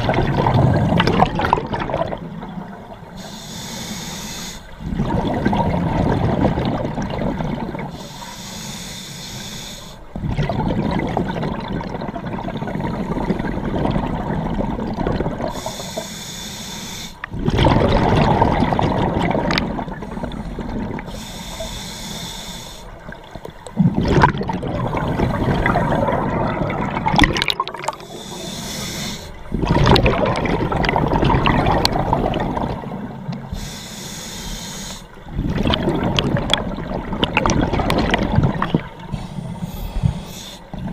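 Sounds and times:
bubbling exhalations underwater: 0.0 - 2.6, 4.8 - 7.9, 10.1 - 15.6, 17.3 - 21.1, 23.7 - 28.5, 29.4 - 33.5, 35.2 - 39.2
hissing regulator inhalations: 3.2 - 4.8, 7.9 - 10.2, 15.5 - 17.3, 20.0 - 23.3, 27.7 - 29.6, 33.4 - 35.3, 39.0 - 40.9.

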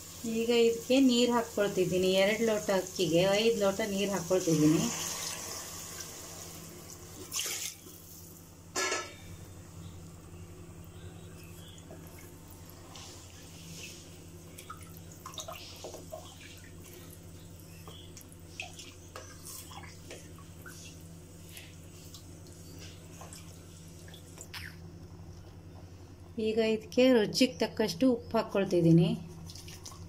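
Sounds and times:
steady low hum: 0.0 - 30.0
water sloshing in pot: 11.4 - 24.8.

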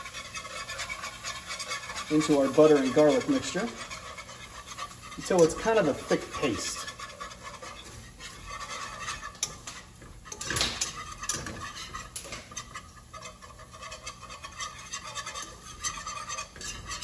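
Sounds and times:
whisk knocking on pan: 0.0 - 17.0
whisk scraping a pan: 0.0 - 17.0.

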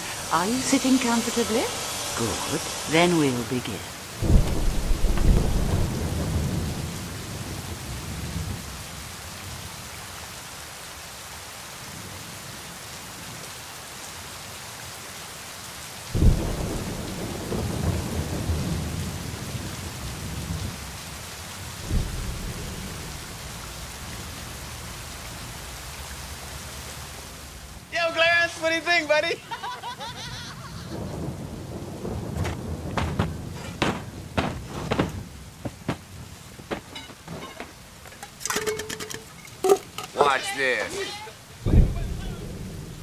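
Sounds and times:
steady rain: 0.0 - 43.0
thunder rolling: 4.2 - 8.8, 16.1 - 21.0, 21.7 - 23.7, 30.0 - 39.4, 41.6 - 43.0.

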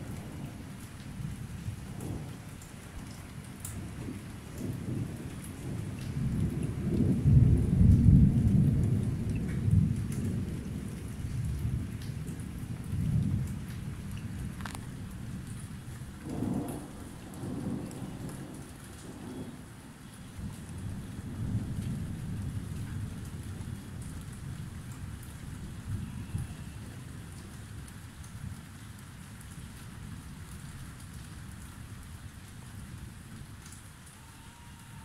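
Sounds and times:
thunder rumbling: 0.0 - 27.5
raindrop ticks: 0.0 - 34.3
steady rain: 0.0 - 35.0.

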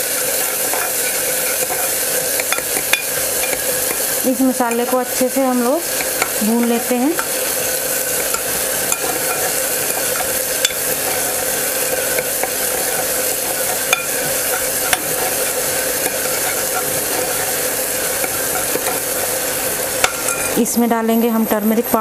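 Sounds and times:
food sizzling in hot oil: 0.0 - 22.0
steady hum: 0.0 - 22.0
metal spoon scraping pot: 0.3 - 20.6
spoon clicking against pot: 2.4 - 4.1.

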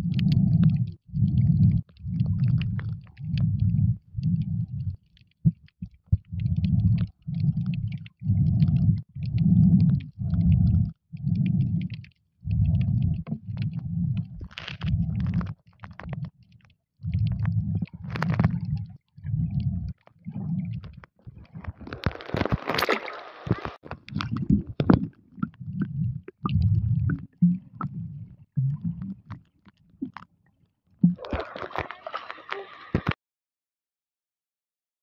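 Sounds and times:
underwater water surges: 17.1 - 29.4, 31.0 - 33.2.

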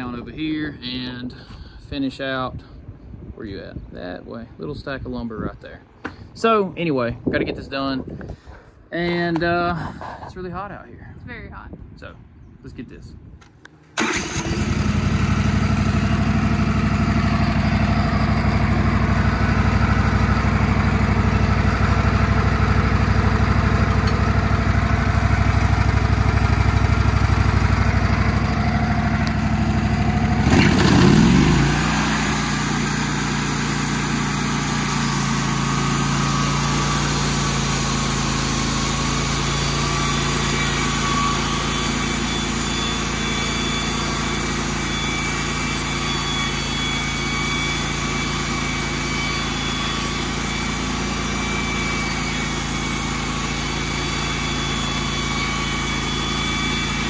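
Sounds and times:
sawmill engine running: 14.0 - 57.0.

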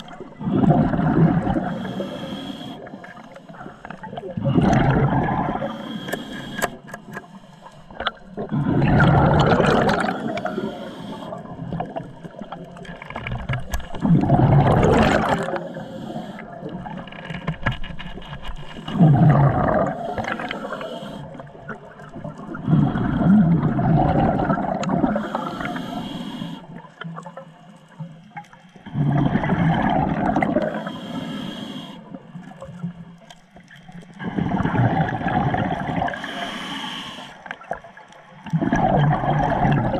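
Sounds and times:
diver exhaling bubbles underwater: 0.0 - 3.0, 3.9 - 6.6, 8.0 - 17.1, 18.8 - 26.3, 28.8 - 31.2, 34.1 - 36.6, 38.4 - 39.9.

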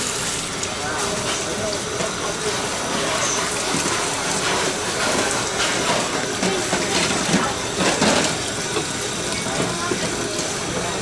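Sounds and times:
tap water running into sink: 0.0 - 11.0.

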